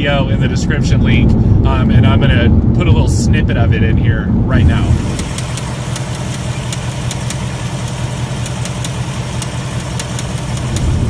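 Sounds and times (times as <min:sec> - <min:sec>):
car engine idling: 0:00.0 - 0:11.0
sharp engine ticking: 0:04.9 - 0:11.0.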